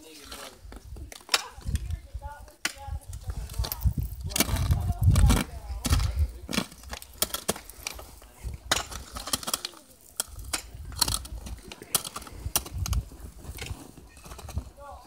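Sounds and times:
ice crunching: 0:03.2 - 0:15.0
ice axe striking ice: 0:04.2 - 0:08.0.

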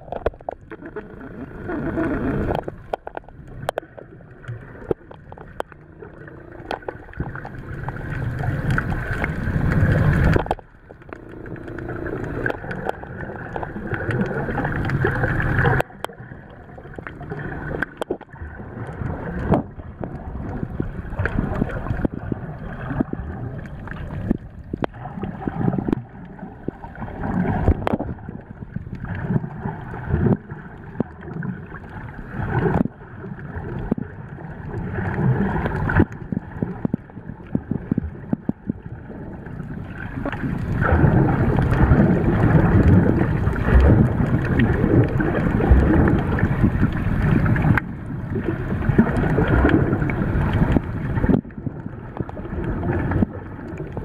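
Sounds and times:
water rushing underwater: 0:00.0 - 0:54.0
faint clicks: 0:01.7 - 0:16.2.

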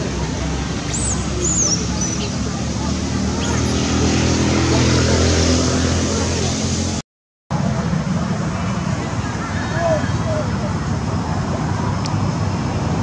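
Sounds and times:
road noise: 0:00.0 - 0:13.0
vehicle engine humming: 0:00.0 - 0:13.0.

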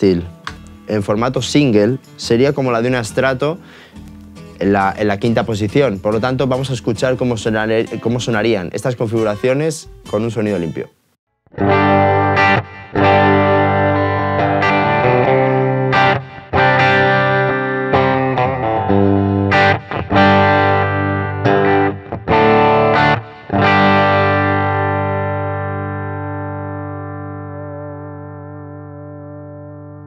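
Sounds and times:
electric guitar strumming chords: 0:11.5 - 0:30.0.

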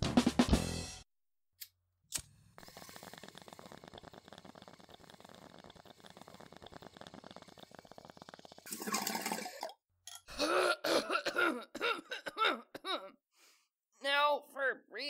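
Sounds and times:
faint rapid bubbling: 0:02.6 - 0:09.8
person coughing hard: 0:10.3 - 0:13.2.

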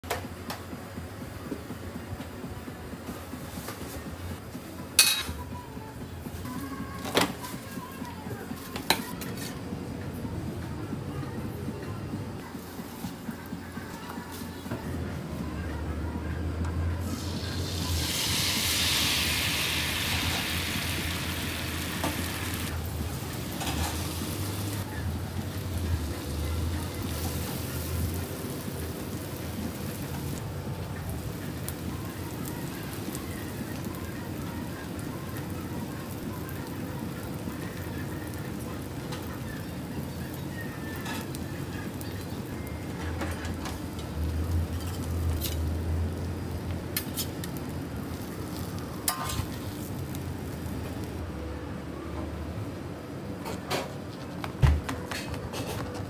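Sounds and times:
batter sizzling on a griddle: 0:17.0 - 0:51.2.

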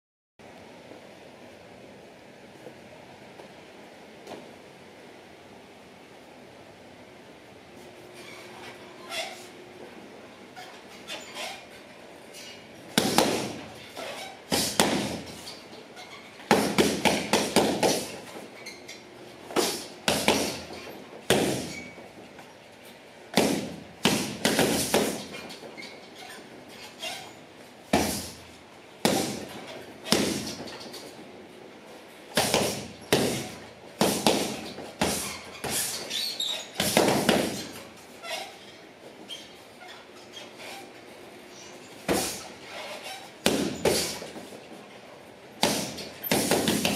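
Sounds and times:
strikes thudding on heavy bag: 0:13.0 - 0:13.6, 0:14.5 - 0:15.4, 0:16.5 - 0:18.2, 0:19.6 - 0:20.7, 0:21.3 - 0:21.8, 0:23.3 - 0:25.3, 0:27.9 - 0:28.4, 0:29.0 - 0:30.7, 0:32.3 - 0:36.0, 0:36.8 - 0:37.8, 0:42.1 - 0:42.4, 0:43.4 - 0:44.2, 0:45.6 - 0:46.9.

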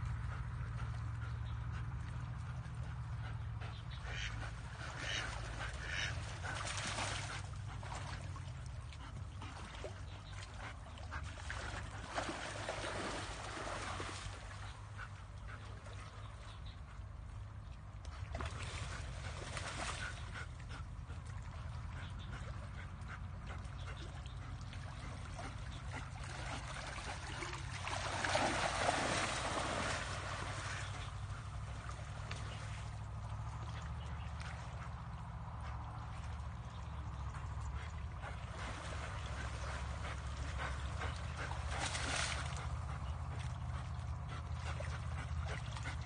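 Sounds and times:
steady low hum: 0:00.0 - 0:46.0
dog splashing through water: 0:04.2 - 0:14.9, 0:18.3 - 0:20.6, 0:24.7 - 0:35.5, 0:38.1 - 0:46.0.

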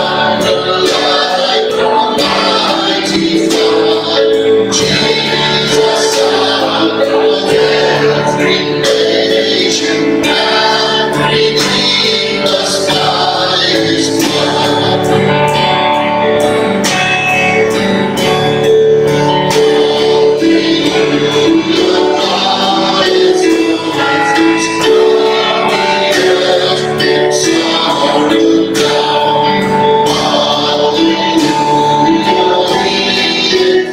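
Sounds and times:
voices singing a hymn: 0:00.0 - 0:16.6, 0:18.2 - 0:33.9
strummed guitar: 0:00.0 - 0:33.9.

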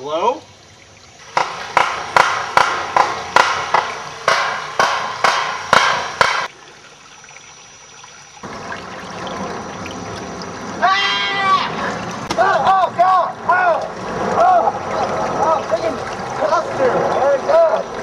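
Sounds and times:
person crying out: 0:10.8 - 0:11.8.

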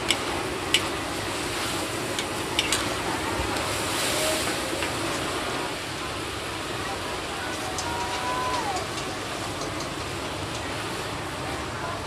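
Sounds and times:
food sizzling in a wok: 0:00.0 - 0:08.5
metal spatulas clinking on pan: 0:02.2 - 0:02.9.

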